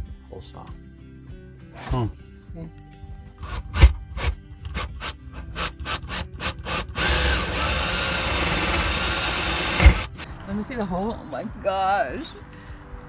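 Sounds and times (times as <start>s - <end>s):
cordless drill driving screw: 3.4s - 10.2s.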